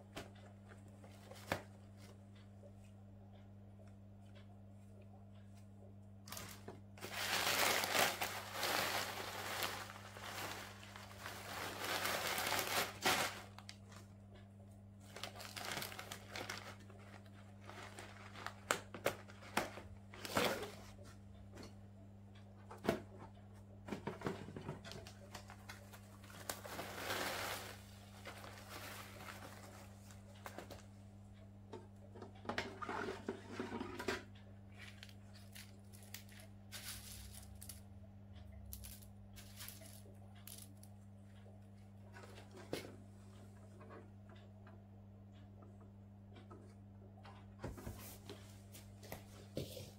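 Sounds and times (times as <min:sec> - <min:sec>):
plastic packaging crinkling: 0:06.3 - 0:13.8, 0:15.1 - 0:19.4.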